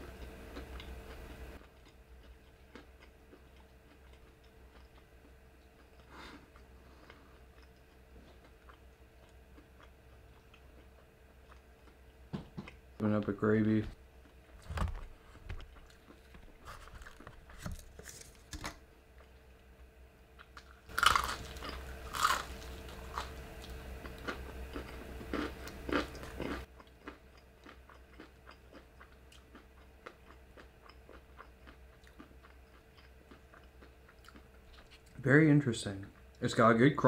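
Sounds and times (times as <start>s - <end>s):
chewing crispy fried chicken: 0.0s - 12.8s, 20.4s - 35.2s.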